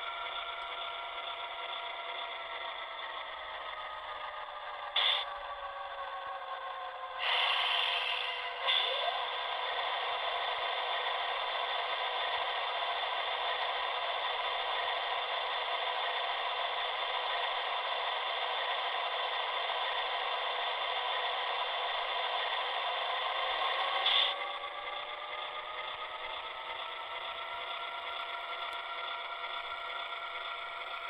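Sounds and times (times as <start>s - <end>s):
diesel engine sound from small speaker: 0.0s - 31.0s.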